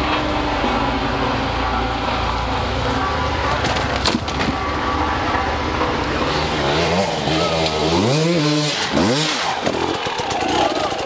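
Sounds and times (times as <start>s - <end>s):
dirt bike engine revving: 4.7s - 11.0s.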